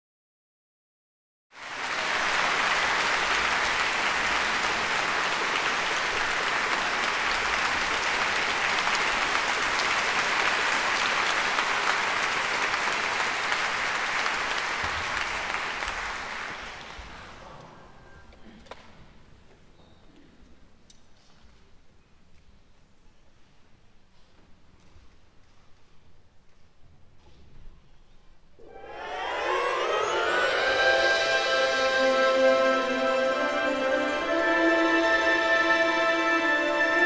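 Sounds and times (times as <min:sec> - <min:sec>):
audience applause: 0:01.6 - 0:17.4, 0:28.7 - 0:37.0.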